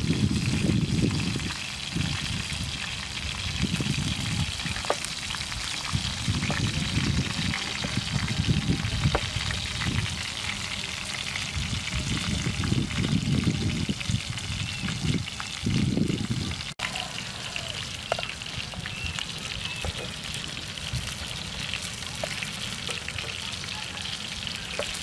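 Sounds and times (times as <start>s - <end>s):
wind buffeting microphone: 0.0s - 16.8s
food sizzling in a frying pan: 0.0s - 25.0s.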